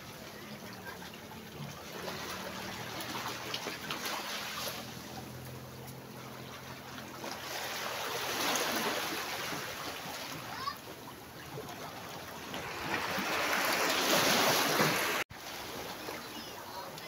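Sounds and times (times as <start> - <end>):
waves washing over stones: 6.7 - 10.7, 11.3 - 17.0.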